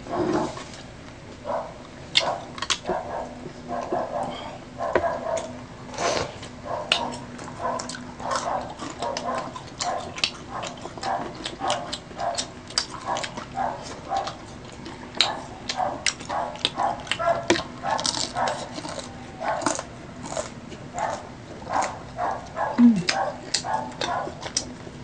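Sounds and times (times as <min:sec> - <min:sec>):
crunchy chewing: 0:00.1 - 0:25.0.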